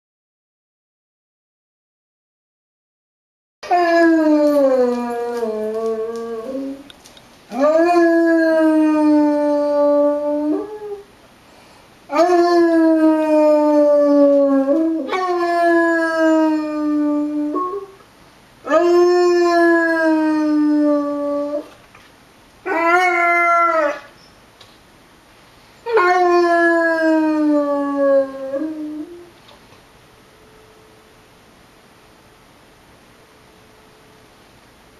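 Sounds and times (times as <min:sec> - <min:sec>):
dog howling: 0:03.6 - 0:06.9, 0:07.5 - 0:11.1, 0:12.1 - 0:18.0, 0:18.6 - 0:21.7, 0:22.6 - 0:24.2, 0:25.8 - 0:29.3.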